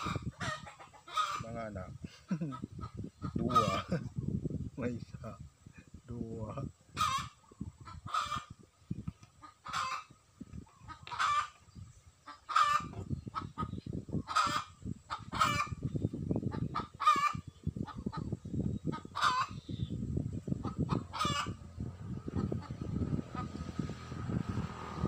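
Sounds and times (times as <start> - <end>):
chickens clucking: 0.0 - 24.6
low rumble: 20.0 - 25.0.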